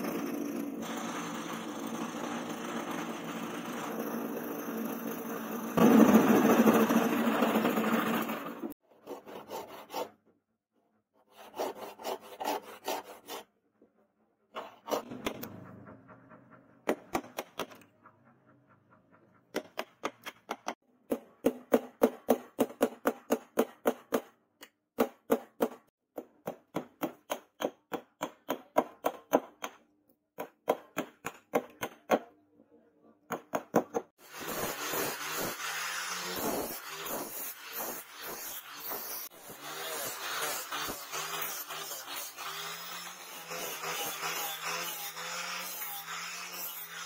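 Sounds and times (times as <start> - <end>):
hammer striking chisel: 16.8 - 17.9, 19.5 - 29.8, 30.4 - 32.3, 33.3 - 35.5
sanding disc grinding wood: 34.2 - 47.0.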